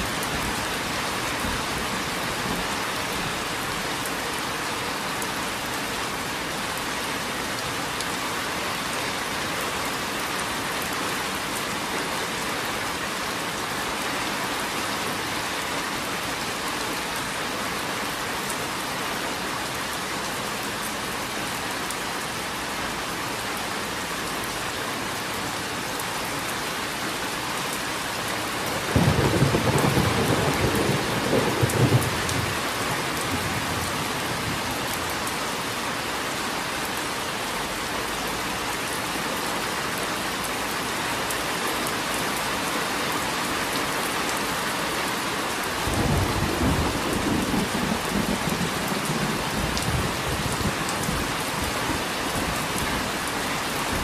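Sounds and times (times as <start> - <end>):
steady rain: 0.0 - 54.0
thunder rumbling: 28.8 - 34.7.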